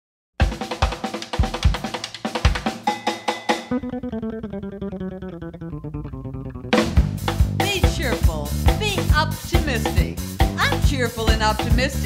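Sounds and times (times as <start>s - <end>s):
drums with bass drum thumps: 0.4s - 4.0s, 6.7s - 12.0s
plucked strings: 3.7s - 9.0s.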